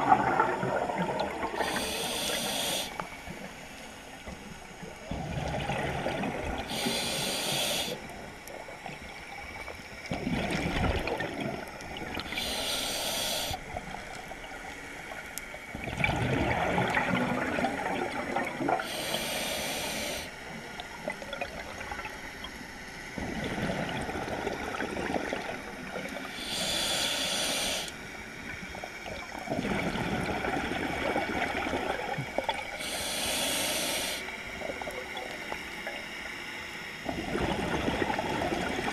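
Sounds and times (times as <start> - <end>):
bubbling exhaled bubbles: 0.0 - 2.4, 4.9 - 6.9, 10.0 - 12.4, 15.7 - 18.9, 23.2 - 26.3, 28.7 - 32.8, 37.0 - 38.9
regulator hissing inhale: 1.4 - 4.4, 6.6 - 8.3, 12.2 - 13.7, 18.8 - 20.5, 26.2 - 28.2, 32.7 - 34.6.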